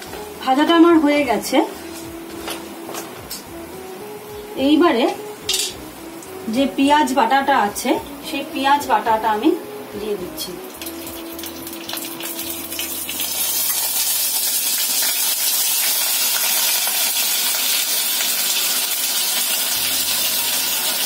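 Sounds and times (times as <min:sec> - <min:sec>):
paste sizzling in hot oil: 0:10.6 - 0:21.0.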